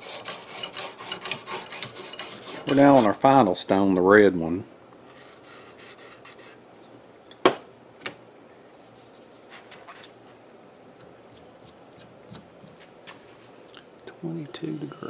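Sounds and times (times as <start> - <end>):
sharpening hone rubbing on blade: 0.0 - 3.1.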